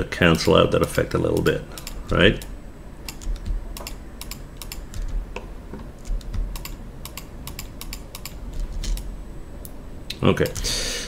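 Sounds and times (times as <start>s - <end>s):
computer keyboard clicking: 0.4s - 2.5s, 3.1s - 5.2s, 6.0s - 9.1s.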